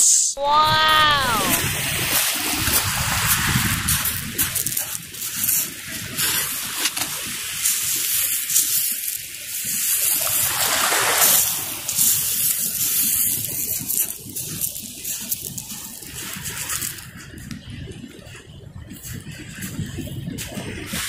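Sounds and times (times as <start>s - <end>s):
small waves on gravel shore: 1.1s - 17.5s.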